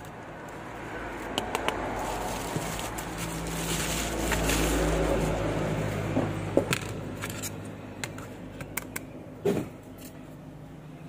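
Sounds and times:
plastic bag rustling: 0:01.9 - 0:06.1.

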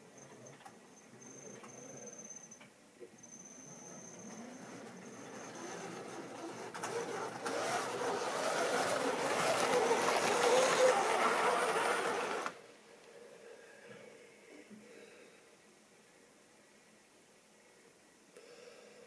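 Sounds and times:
model train motor whirring: 0:03.6 - 0:12.6
wheels running over track: 0:03.8 - 0:12.6.

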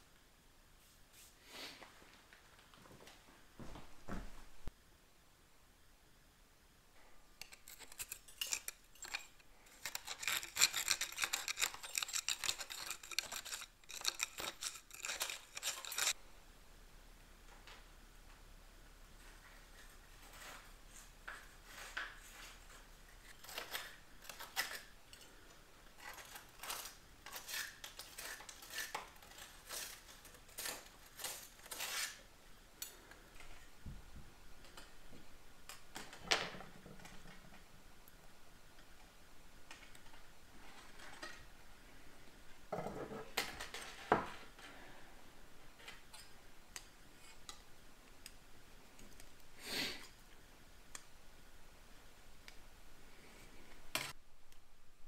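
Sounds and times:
metal clinking and scraping: 0:07.4 - 0:16.2, 0:20.2 - 0:32.2, 0:39.7 - 0:41.5, 0:42.7 - 0:44.8.

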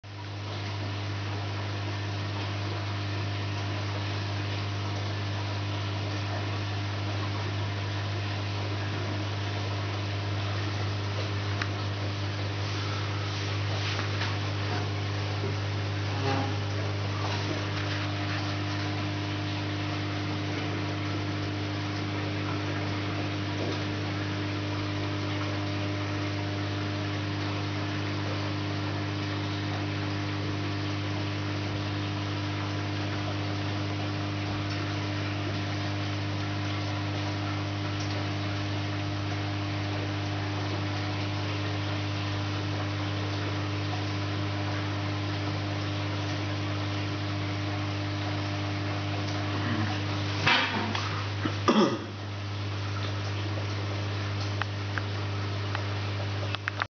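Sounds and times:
aquarium equipment humming: 0:00.0 - 0:56.9
air bubbles hissing: 0:03.8 - 0:42.2.

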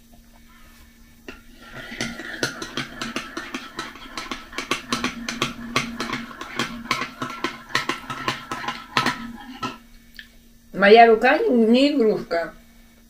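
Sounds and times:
teaspoon clinking in ceramic mug: 0:01.6 - 0:09.8.

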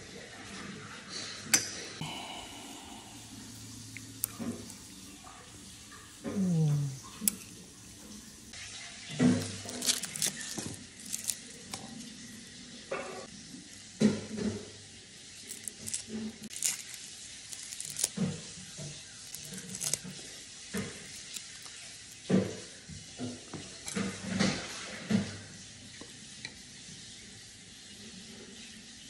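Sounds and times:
garlic skin being peeled: 0:09.3 - 0:12.0, 0:15.5 - 0:18.4, 0:19.1 - 0:20.2, 0:20.8 - 0:22.3.

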